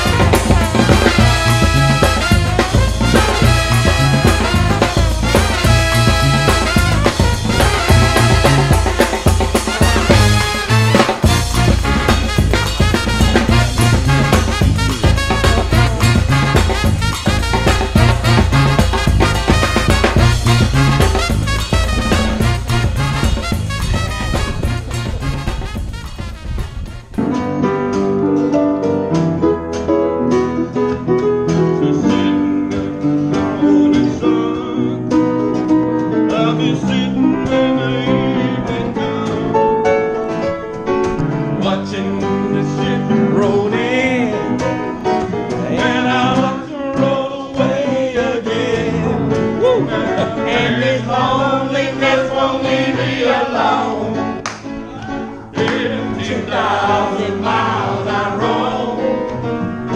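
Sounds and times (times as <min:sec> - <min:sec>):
acoustic guitar: 0:00.0 - 0:59.9
piano: 0:00.0 - 0:59.9
man singing: 0:15.0 - 0:16.8, 0:31.8 - 0:35.3, 0:36.2 - 0:39.9, 0:41.6 - 0:53.1.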